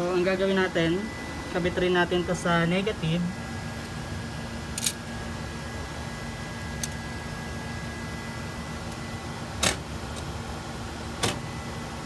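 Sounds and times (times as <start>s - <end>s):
low hum with fan noise: 0.0s - 12.0s
sharp clicks from metal cabinet: 9.6s - 10.3s, 11.2s - 11.4s.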